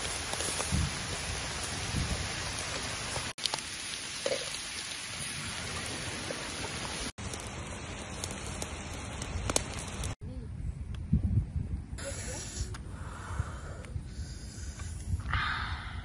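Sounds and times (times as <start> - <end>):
small crackles: 0.0 - 1.8, 2.4 - 10.2.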